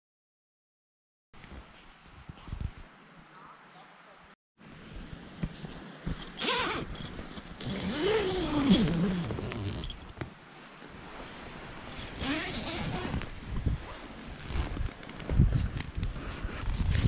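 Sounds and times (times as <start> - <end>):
nylon fabric rustling: 5.5 - 17.0
zipper being pulled open: 6.2 - 10.2, 11.9 - 15.3.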